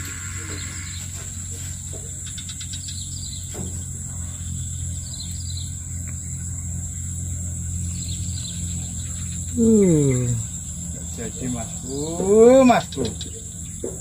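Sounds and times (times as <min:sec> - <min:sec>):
birds chirping: 0:00.0 - 0:14.0
high-pitched insect drone: 0:00.0 - 0:14.0
low hum: 0:00.0 - 0:14.0.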